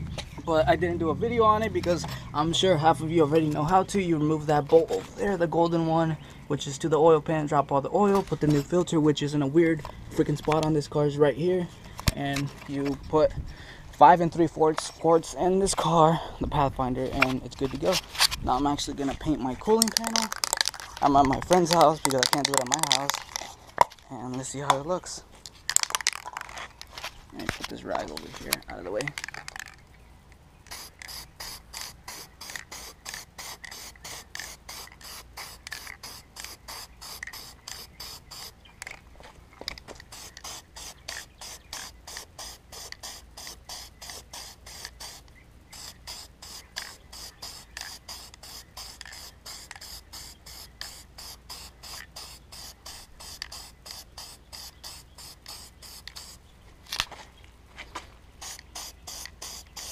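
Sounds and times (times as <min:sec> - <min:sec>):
spray paint can hissing: 0:19.6 - 0:23.6, 0:30.6 - 0:38.6, 0:40.0 - 0:56.4, 0:58.4 - 0:59.9.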